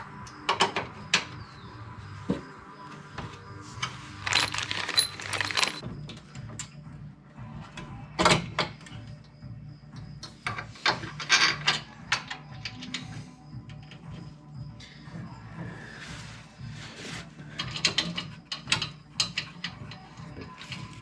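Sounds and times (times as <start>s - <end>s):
metal tools clinking and clunking: 3.8s - 5.8s, 10.4s - 13.1s.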